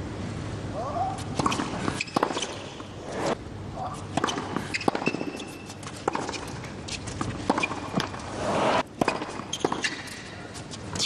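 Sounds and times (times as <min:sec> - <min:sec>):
shoes squeaking on court: 0:01.0 - 0:11.0
tennis ball bounces: 0:01.2 - 0:03.0, 0:03.8 - 0:08.3, 0:09.0 - 0:11.0
tennis racket strikes: 0:01.3 - 0:02.9, 0:04.0 - 0:08.3, 0:09.0 - 0:10.3.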